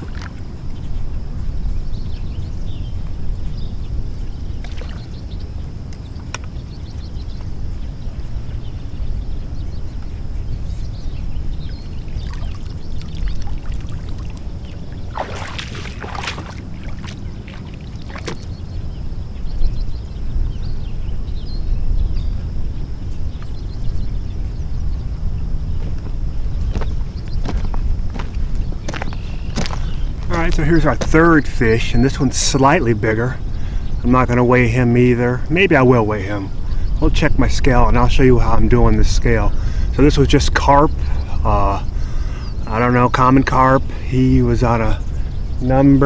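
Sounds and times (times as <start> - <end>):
water splashing and sloshing: 0.0 - 0.7, 4.5 - 5.4, 11.6 - 18.6.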